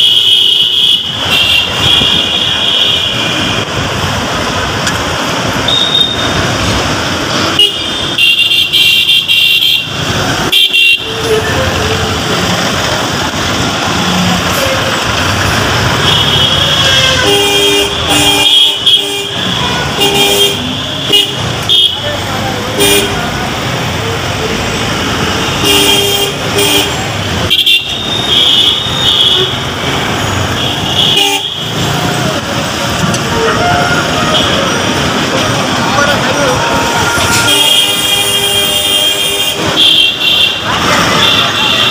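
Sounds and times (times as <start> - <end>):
vehicle horns honking: 0.0 - 3.8, 5.6 - 6.6, 7.3 - 12.7, 14.1 - 23.4, 25.0 - 32.2, 33.0 - 35.3, 36.2 - 41.9
road traffic engines: 0.0 - 41.9
high-pitched vehicle horn: 5.7 - 6.4, 16.0 - 22.0, 33.2 - 34.9, 36.6 - 41.9.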